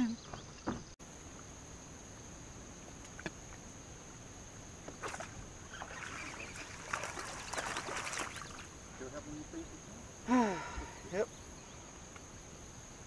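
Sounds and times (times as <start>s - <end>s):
high insect whine: 0.0s - 13.0s
fish splashing in water: 5.0s - 8.7s.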